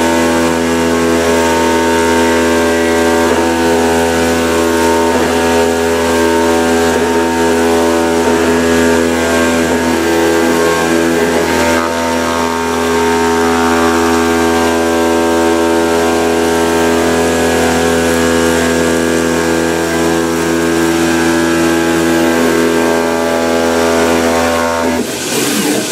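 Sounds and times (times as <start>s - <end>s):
machine mechanical hum: 0.0s - 25.9s.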